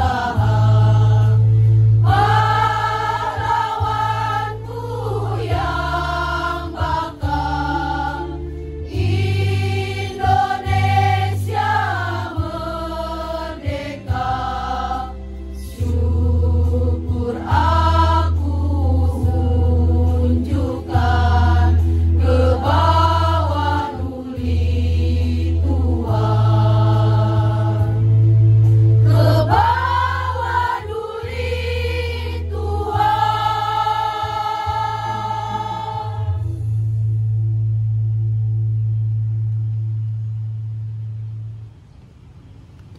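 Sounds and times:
women's choir singing: 0:00.0 - 0:28.2, 0:29.0 - 0:36.5
low sustained accompaniment: 0:00.0 - 0:42.9.

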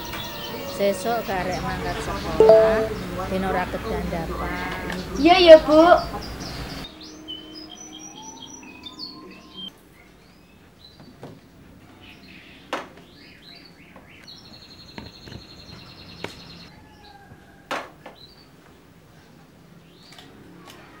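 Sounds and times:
birds chirping: 0:00.0 - 0:11.2, 0:11.9 - 0:16.7.

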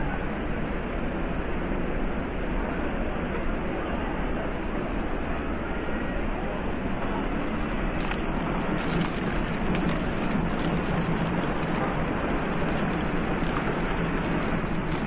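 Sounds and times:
rain-like rushing hiss: 0:07.9 - 0:15.0.

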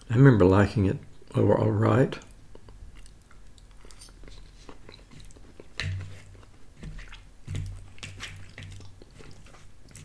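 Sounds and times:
wet mouth clicks: 0:02.2 - 0:06.5
person chewing food: 0:02.2 - 0:10.0.

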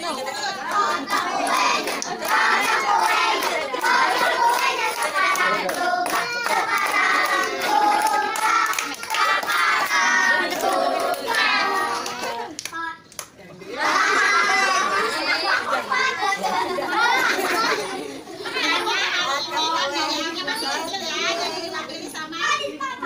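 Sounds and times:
children singing: 0:00.6 - 0:12.5
hand clapping: 0:00.6 - 0:13.4.

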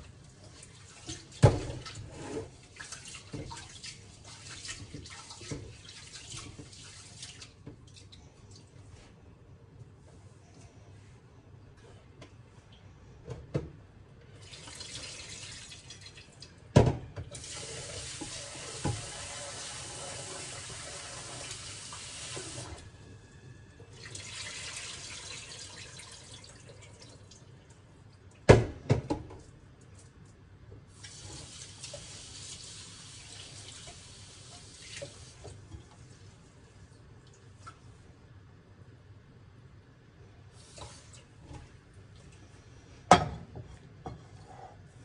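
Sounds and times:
tap water running into bowl: 0:14.4 - 0:16.2, 0:17.3 - 0:22.8.

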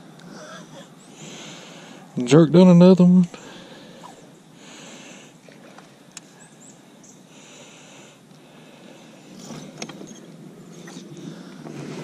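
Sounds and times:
soft breaths through the nose: 0:01.1 - 0:02.2, 0:03.3 - 0:05.4, 0:07.2 - 0:09.8.

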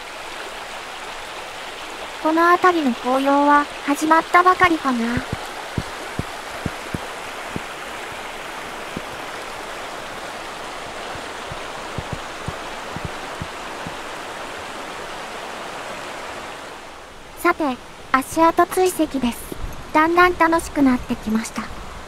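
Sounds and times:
river water rushing over stones: 0:00.0 - 0:18.2
soft low knocks: 0:05.1 - 0:07.7, 0:08.9 - 0:09.3, 0:11.0 - 0:14.0.

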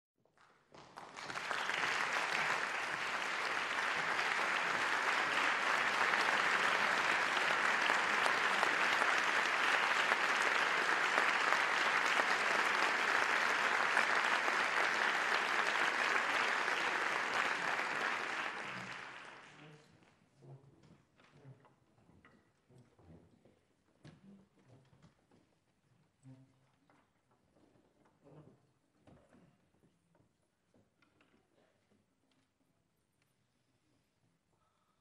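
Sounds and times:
audience applauding: 0:00.4 - 0:19.6.

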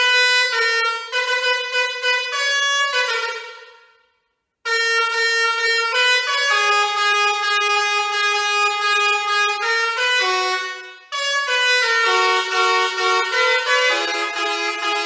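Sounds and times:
musical air horn playing a tune: 0:00.0 - 0:15.0.

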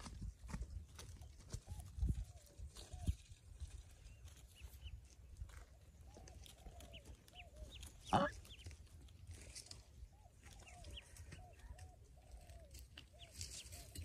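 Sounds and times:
ducklings peeping: 0:01.0 - 0:09.3, 0:10.0 - 0:14.0.

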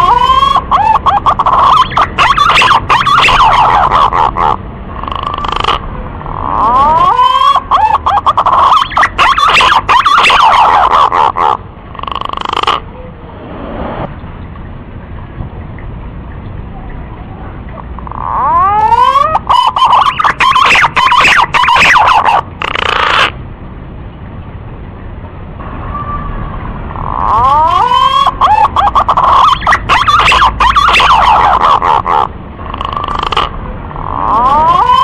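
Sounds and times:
pigeon whistled calls: 0:00.0 - 0:04.6, 0:06.4 - 0:11.6, 0:18.1 - 0:23.3, 0:27.1 - 0:35.0.

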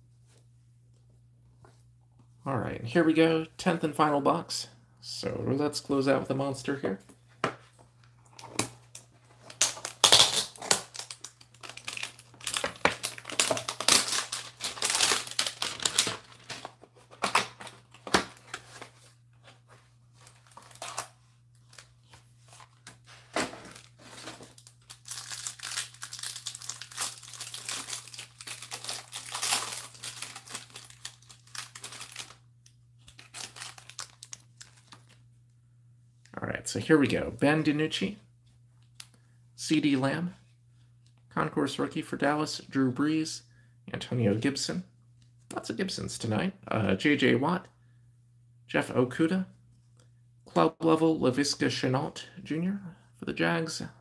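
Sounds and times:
foil pack crinkling and tearing: 0:09.5 - 0:16.8, 0:20.2 - 0:21.9, 0:23.5 - 0:35.2.

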